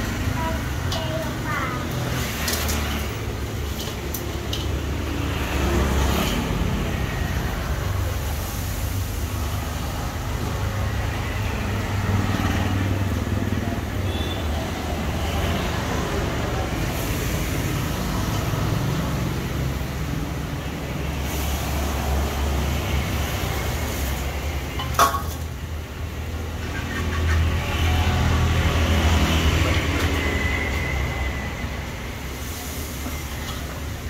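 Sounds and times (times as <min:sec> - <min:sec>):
food frying in hot oil: 0:00.0 - 0:12.5, 0:16.6 - 0:28.0, 0:31.6 - 0:34.0
street traffic rumble: 0:00.0 - 0:34.0.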